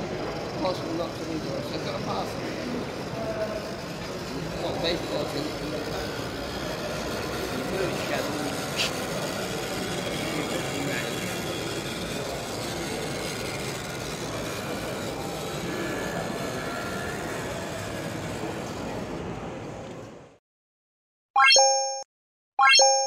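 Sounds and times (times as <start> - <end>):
exhibition hall hubbub: 0.0 - 20.4.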